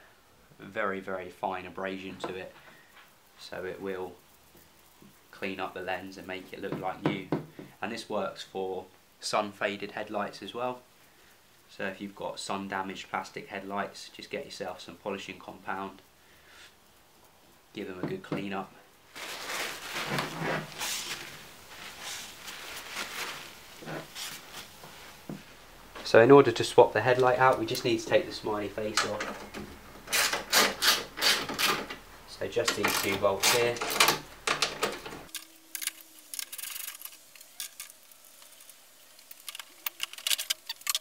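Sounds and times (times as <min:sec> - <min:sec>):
cloth swishing on plastic: 0:19.1 - 0:25.6.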